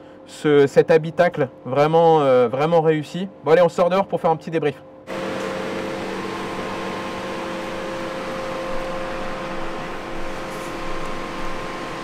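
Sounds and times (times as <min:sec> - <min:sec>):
electric fan whirring: 0:05.0 - 0:12.0.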